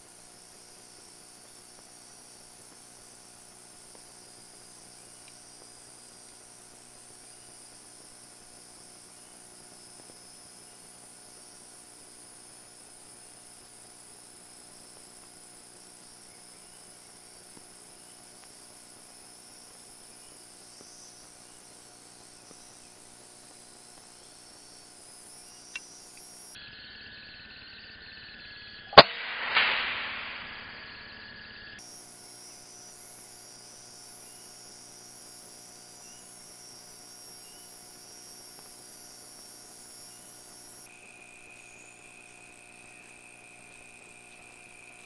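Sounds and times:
faint hum and hiss: 0:00.0 - 0:26.6, 0:31.8 - 0:45.0
noisy swell: 0:29.0 - 0:31.2
sharp gunshot: 0:29.0 - 0:31.2.

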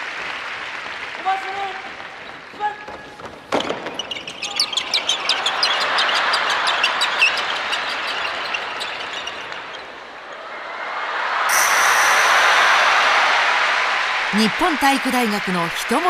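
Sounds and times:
audience applause: 0:00.0 - 0:02.6, 0:10.5 - 0:16.0
sneakers squeaking on gym floor: 0:02.2 - 0:10.4.

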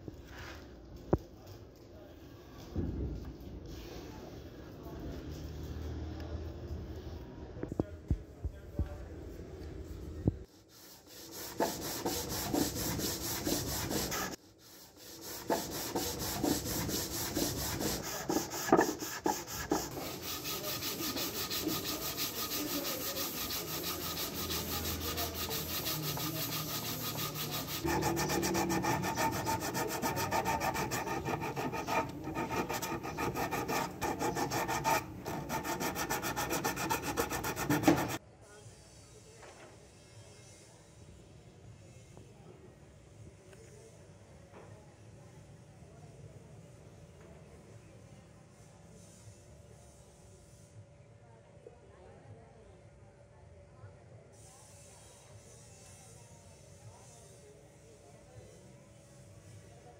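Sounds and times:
sandpaper rubbing on wood: 0:10.5 - 0:38.2.

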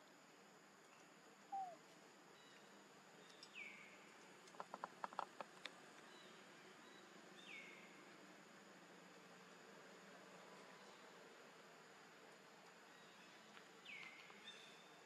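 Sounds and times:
faint high falling chirps: 0:01.5 - 0:01.8.

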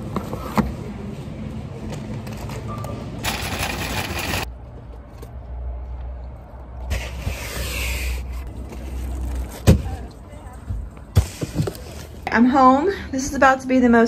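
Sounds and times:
low rumble of vehicles: 0:00.0 - 0:14.0
boxes rustling and scraping: 0:11.0 - 0:12.2.

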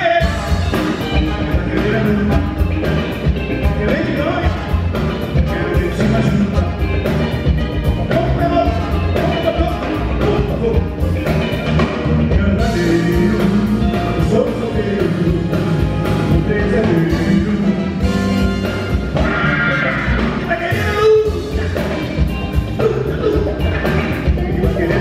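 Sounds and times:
man singing into microphone: 0:00.0 - 0:00.7, 0:01.3 - 0:02.7, 0:05.4 - 0:07.0, 0:12.2 - 0:18.1, 0:19.4 - 0:22.1, 0:24.2 - 0:25.0
soul-funk band playing: 0:00.0 - 0:25.0.

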